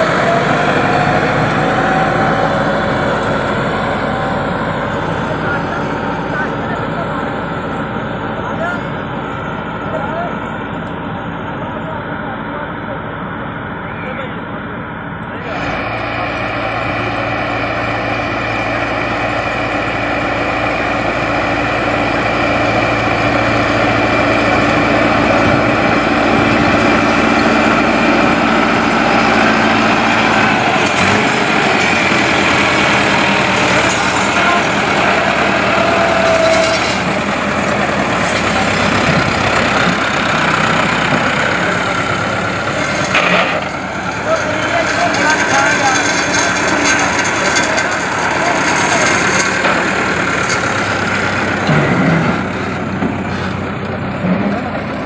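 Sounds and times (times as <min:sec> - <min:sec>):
tractor diesel engine: 0:00.0 - 0:55.0.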